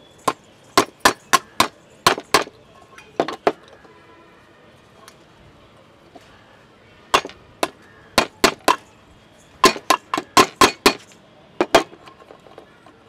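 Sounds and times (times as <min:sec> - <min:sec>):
hammer striking nail into tin can: 0:00.3 - 0:02.5, 0:07.2 - 0:08.8, 0:09.6 - 0:11.9.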